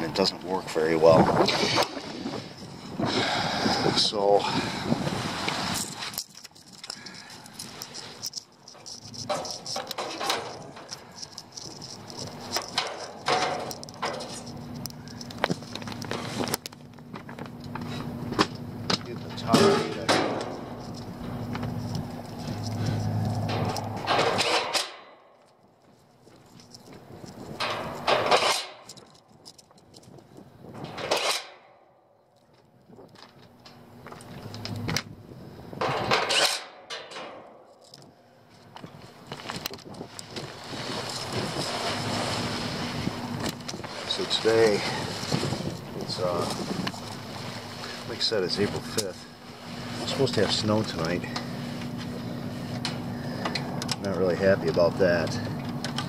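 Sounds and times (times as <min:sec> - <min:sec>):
steady low hum: 0:00.0 - 0:56.0
footsteps on gravel: 0:04.9 - 0:24.0, 0:38.0 - 0:52.2
hands clicking and rustling: 0:05.8 - 0:17.9.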